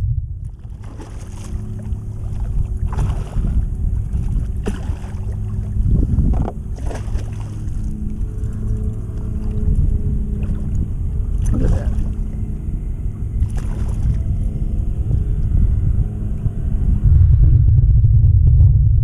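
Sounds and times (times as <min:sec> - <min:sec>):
wind buffeting microphone: 0:00.0 - 0:19.0
fish splashing at water surface: 0:00.5 - 0:05.6, 0:06.7 - 0:08.0, 0:13.4 - 0:14.2.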